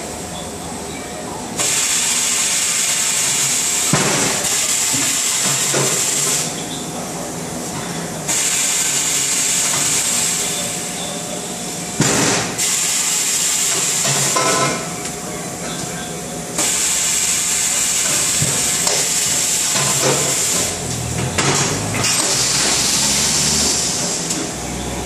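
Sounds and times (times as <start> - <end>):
compressed air hissing: 22.0 - 24.4.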